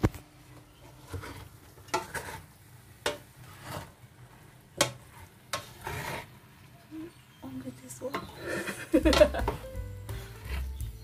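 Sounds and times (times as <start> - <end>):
spatula scraping steel pot: 0.8 - 6.4, 8.1 - 11.0.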